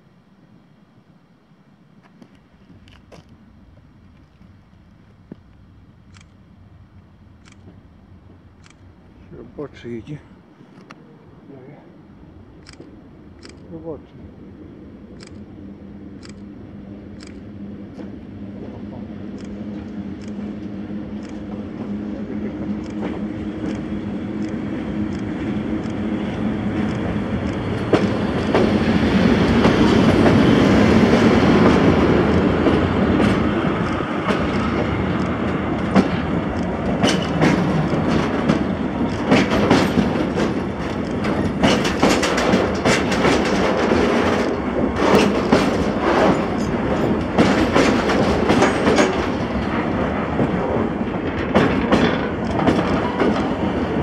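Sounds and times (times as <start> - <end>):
train humming past: 0.0 - 54.0
wheels clicking over rail joints: 17.1 - 54.0.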